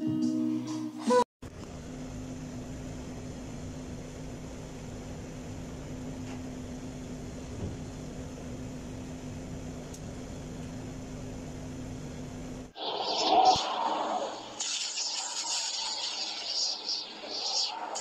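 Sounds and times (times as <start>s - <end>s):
machinery and ventilation noise: 1.4s - 14.6s
constant low electrical hum: 1.4s - 18.0s.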